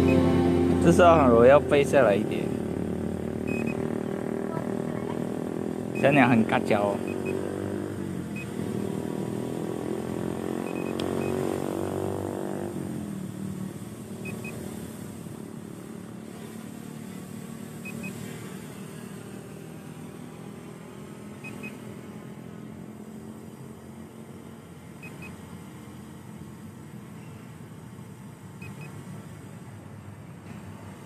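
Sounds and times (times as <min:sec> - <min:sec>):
short high double beep: 0:00.0 - 0:01.2, 0:03.5 - 0:03.9
motor hum: 0:00.0 - 0:12.0.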